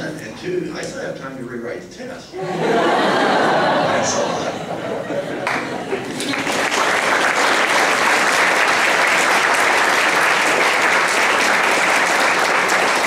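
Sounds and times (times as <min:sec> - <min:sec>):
audience applauding: 0:05.3 - 0:13.0.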